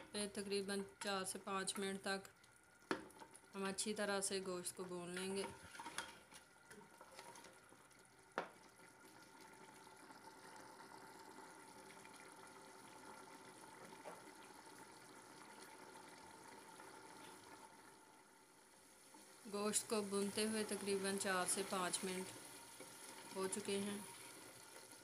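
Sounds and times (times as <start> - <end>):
curry bubbling and sizzling: 0.0 - 25.0.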